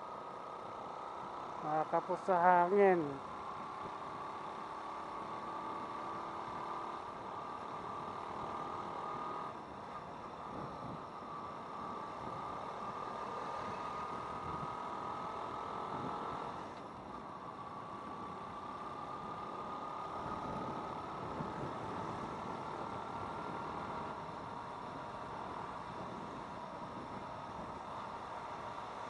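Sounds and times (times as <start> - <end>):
motorcycle engine whining: 0.0 - 29.0
road and wind noise: 0.0 - 29.0.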